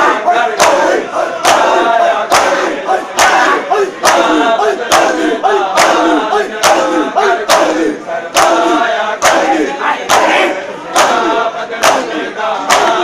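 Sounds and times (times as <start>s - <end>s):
men chanting: 0.0s - 13.0s
hands slapping bare chests: 0.6s - 7.8s, 12.7s - 13.0s.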